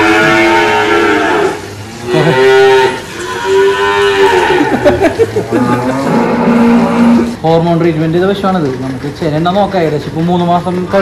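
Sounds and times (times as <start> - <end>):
cows mooing: 0.0 - 7.4.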